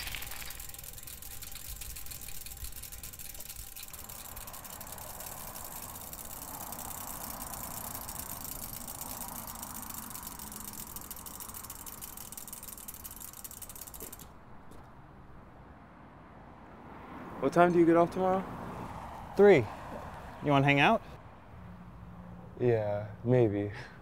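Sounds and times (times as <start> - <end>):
freewheel hubs ticking: 0.0 - 14.5
bicycles rolling on asphalt: 0.0 - 15.6, 16.8 - 21.0.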